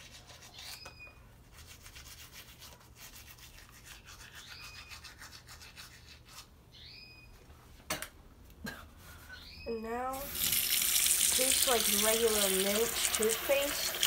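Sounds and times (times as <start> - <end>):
bird chirping: 4.4 - 5.0, 6.7 - 7.4, 9.3 - 10.1
electric toothbrush brushing teeth: 10.2 - 14.0.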